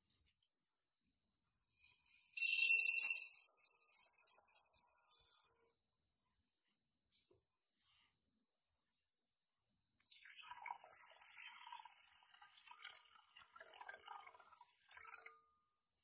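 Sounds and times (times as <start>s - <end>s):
water pouring into bowl: 10.1s - 15.3s.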